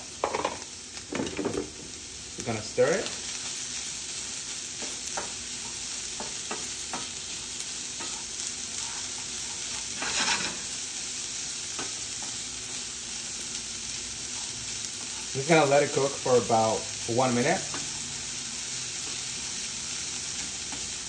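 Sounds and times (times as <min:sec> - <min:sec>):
cauliflower rice sizzling in oil: 0:00.0 - 0:21.0
wooden spatula scraping a pan: 0:08.0 - 0:10.8.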